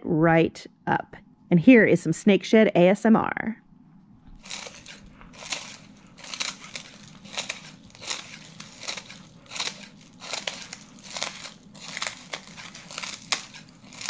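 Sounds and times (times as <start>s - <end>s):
scissors snipping crisp skin: 4.4s - 14.0s.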